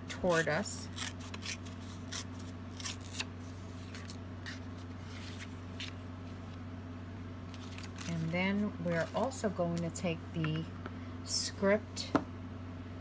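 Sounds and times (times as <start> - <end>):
low steady hum: 0.0 - 13.0
cardstock tearing: 0.8 - 6.0
paper rustling and sliding: 1.2 - 6.6, 7.5 - 8.3.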